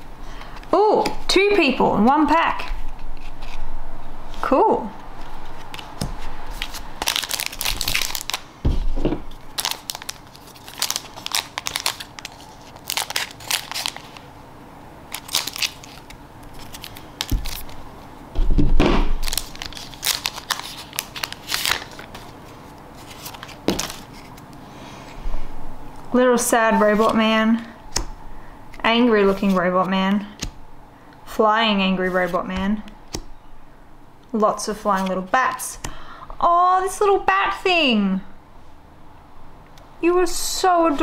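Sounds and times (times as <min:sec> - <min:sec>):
foil pack crinkling: 0:05.6 - 0:08.5, 0:09.2 - 0:14.3, 0:15.1 - 0:17.8, 0:19.2 - 0:24.4.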